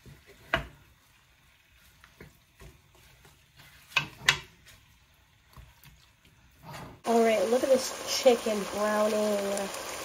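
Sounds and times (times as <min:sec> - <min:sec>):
faint sizzle: 0:00.0 - 0:10.0
utensil clanking and scraping in pan: 0:02.0 - 0:04.9.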